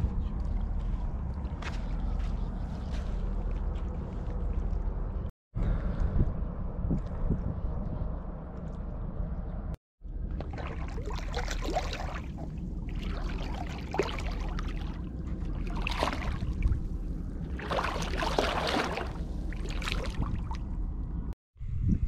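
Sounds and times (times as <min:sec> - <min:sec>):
steady low rumble: 0:00.0 - 0:22.0
feet splashing in shallow water: 0:10.3 - 0:16.9, 0:17.5 - 0:20.6.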